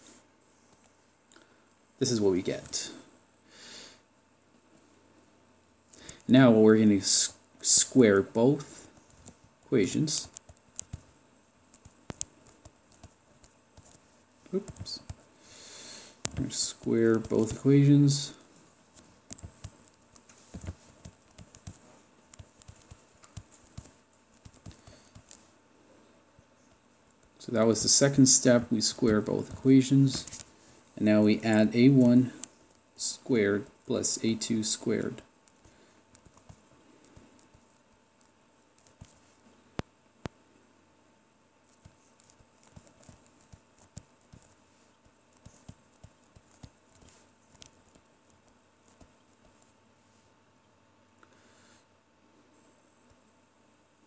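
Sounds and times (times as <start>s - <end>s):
stylus tapping on tablet screen: 11.7s - 14.0s, 19.3s - 25.4s.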